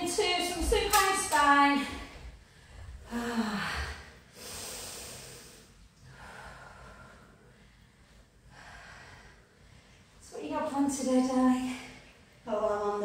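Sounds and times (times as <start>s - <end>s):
woman breathing hard: 2.3s - 10.2s.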